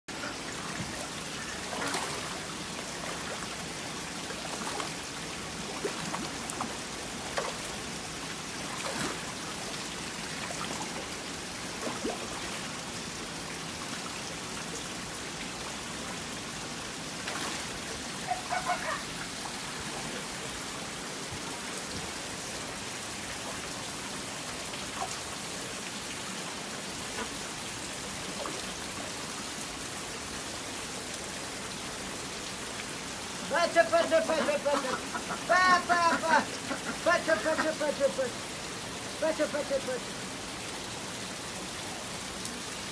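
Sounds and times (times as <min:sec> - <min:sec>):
water pouring into a pond: 0:00.1 - 0:33.6
sharp water splashes: 0:00.5 - 0:12.7, 0:17.2 - 0:19.4.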